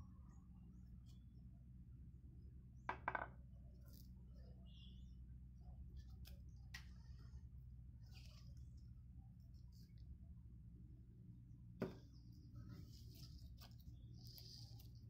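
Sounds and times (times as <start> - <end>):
low steady hum: 0.0 - 15.0
cricket bat knocks: 11.8 - 12.0.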